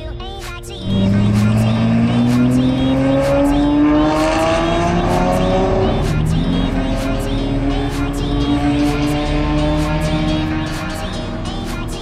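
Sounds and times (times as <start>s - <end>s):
sports car engine accelerating: 0.8s - 12.0s.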